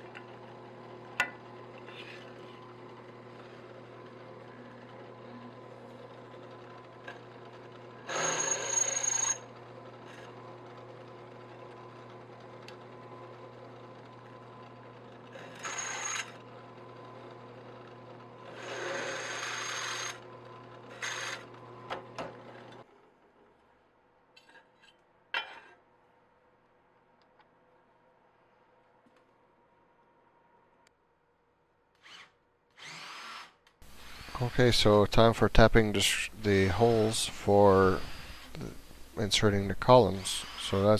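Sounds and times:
drill press motor running: 0:00.0 - 0:23.2, 0:32.0 - 0:34.7, 0:36.5 - 0:40.9
drill bit squealing into metal: 0:08.1 - 0:09.5, 0:15.4 - 0:16.4, 0:18.6 - 0:20.2, 0:21.0 - 0:21.5, 0:40.1 - 0:40.9.

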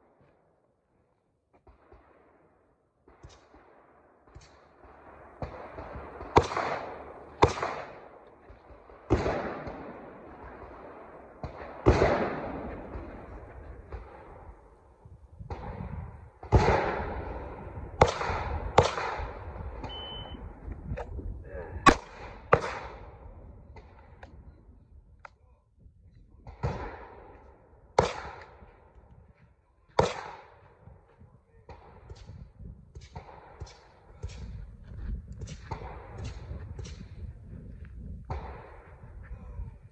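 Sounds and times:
pistol shots with echo: 0:01.6 - 0:20.5, 0:21.8 - 0:24.0, 0:26.4 - 0:28.8, 0:29.9 - 0:30.9, 0:31.6 - 0:34.6
shot timer beep: 0:19.8 - 0:20.4.

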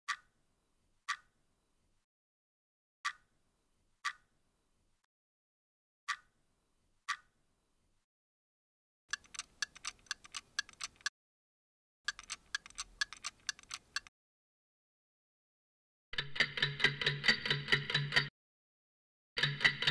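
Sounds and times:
clock ticking: 0:00.1 - 0:00.3, 0:06.1 - 0:06.3, 0:09.1 - 0:11.1, 0:12.1 - 0:14.1, 0:16.2 - 0:18.3, 0:19.4 - 0:19.9.

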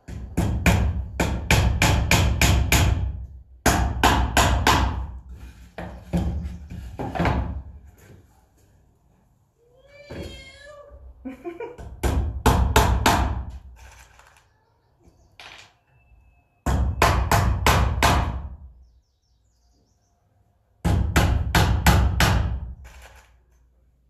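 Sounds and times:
hammer driving nails into wood: 0:00.0 - 0:05.1, 0:11.8 - 0:13.6, 0:20.8 - 0:23.2.

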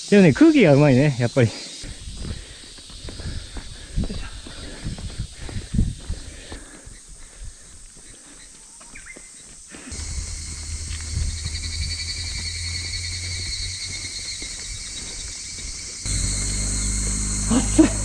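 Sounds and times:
cicadas chirring: 0:00.0 - 0:18.0
low steady rumble: 0:16.1 - 0:18.0.

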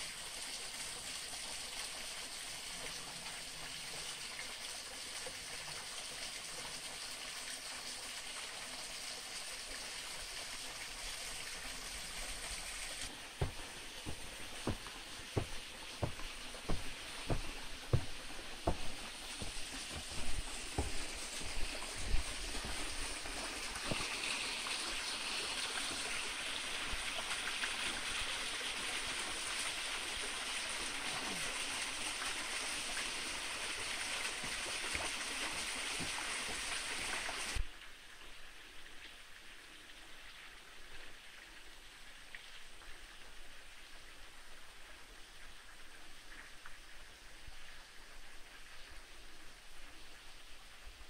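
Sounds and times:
quiet forest background: 0:00.0 - 0:51.0
stream rushing over rocks: 0:11.6 - 0:37.6
footsteps on trail steps: 0:13.1 - 0:24.2.

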